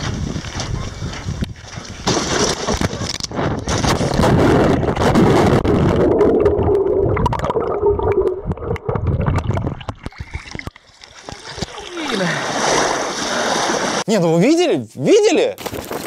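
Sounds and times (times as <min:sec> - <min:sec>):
underwater knocks and clatters: 0:02.1 - 0:11.8
muffled underwater rushing water: 0:04.7 - 0:14.0.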